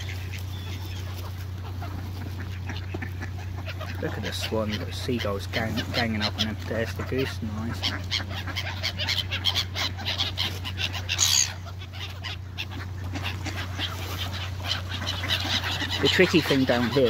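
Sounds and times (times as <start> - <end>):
geese honking: 0.0 - 17.0
gulls squawking: 0.0 - 17.0
loud shrill bird call: 11.1 - 11.6.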